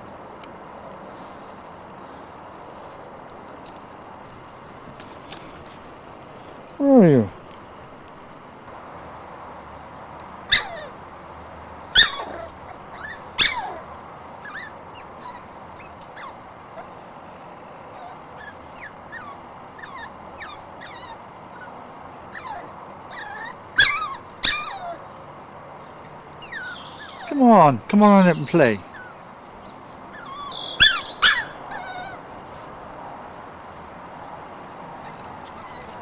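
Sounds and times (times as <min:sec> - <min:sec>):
puppy whining: 0:10.5 - 0:10.9, 0:12.0 - 0:17.0, 0:17.9 - 0:25.0, 0:26.4 - 0:27.4, 0:28.9 - 0:29.2, 0:30.1 - 0:32.7, 0:35.0 - 0:36.0
puppy yelping: 0:10.5 - 0:11.0, 0:11.9 - 0:17.0, 0:17.9 - 0:25.0, 0:26.4 - 0:27.3, 0:28.9 - 0:29.2, 0:30.1 - 0:32.6, 0:35.0 - 0:36.0.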